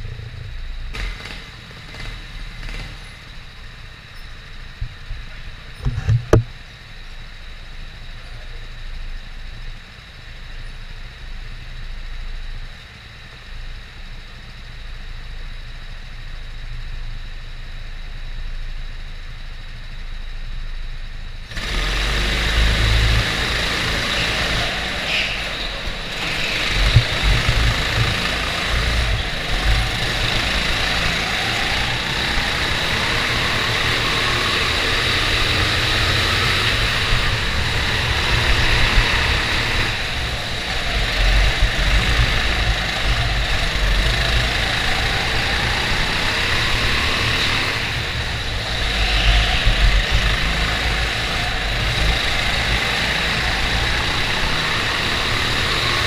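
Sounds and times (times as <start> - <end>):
go-kart engines revving: 0.0 - 4.0, 21.5 - 56.0.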